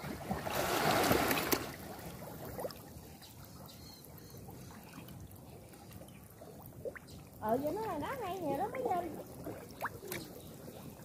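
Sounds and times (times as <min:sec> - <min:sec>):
water splashing and sloshing: 0:00.0 - 0:11.0
water trickling and dripping: 0:00.0 - 0:11.0.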